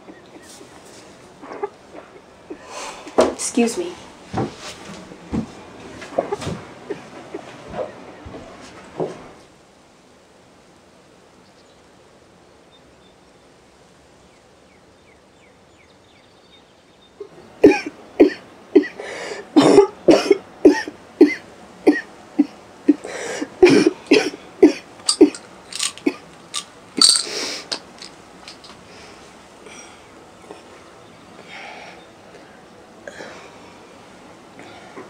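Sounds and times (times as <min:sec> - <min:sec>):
woman coughing: 0:17.7 - 0:19.0, 0:19.6 - 0:23.0, 0:23.6 - 0:25.4.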